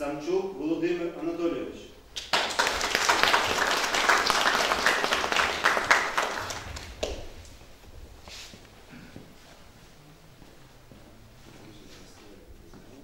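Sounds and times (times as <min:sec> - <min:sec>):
congregation applauding: 0:02.2 - 0:07.8.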